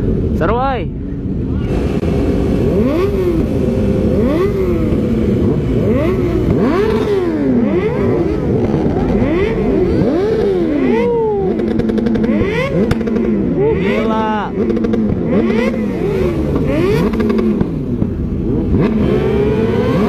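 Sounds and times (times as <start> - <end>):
motorcycle engines revving: 0.0 - 20.0.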